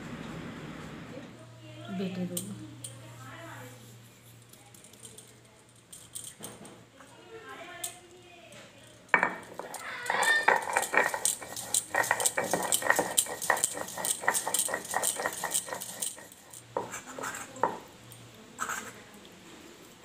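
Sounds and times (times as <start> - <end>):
stone roller scraping on slab: 9.4 - 17.8.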